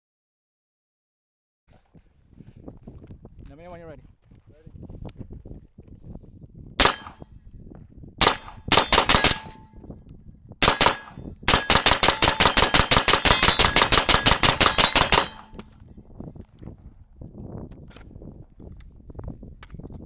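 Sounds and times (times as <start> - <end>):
steel targets ringing: 6.8 - 7.2, 8.2 - 9.7, 10.6 - 15.6
suppressed rifle shots: 6.8 - 7.2, 8.2 - 9.7, 10.6 - 15.7.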